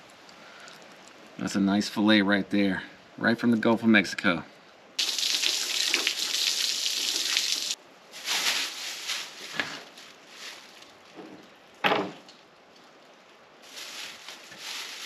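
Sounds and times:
garden hose spraying water: 5.0s - 10.9s, 13.6s - 15.0s
handling rustles: 8.1s - 13.0s, 13.6s - 15.0s.

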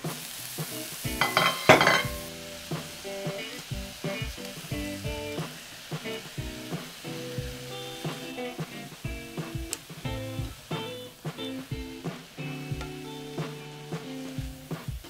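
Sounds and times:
stirring in pan: 0.0s - 10.0s
vegetables sizzling in oil: 0.0s - 15.0s.

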